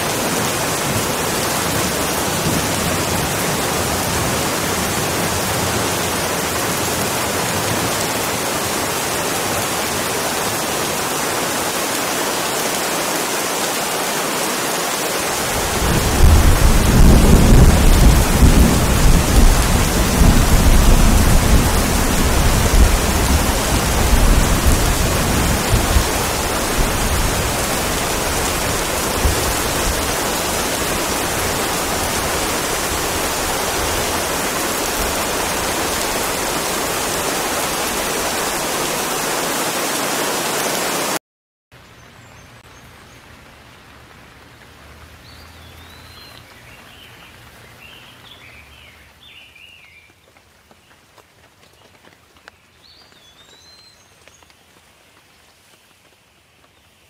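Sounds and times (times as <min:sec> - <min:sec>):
rain hiss: 0:00.0 - 0:41.2
thunder rumble: 0:15.4 - 0:36.6.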